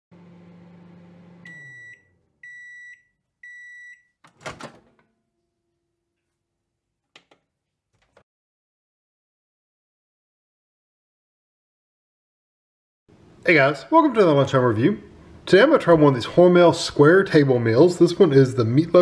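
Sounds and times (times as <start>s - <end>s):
microwave oven humming: 0.1s - 3.8s
microwave timer beeps: 1.3s - 4.2s.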